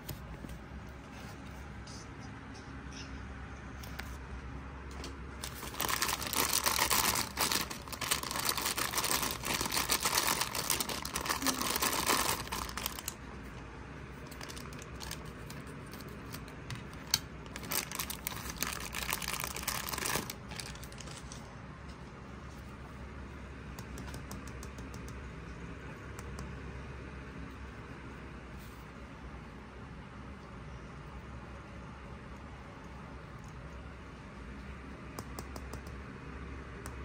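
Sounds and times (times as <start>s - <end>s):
plastic bag crinkling and tearing: 5.4s - 13.3s, 14.2s - 16.4s, 17.4s - 21.5s.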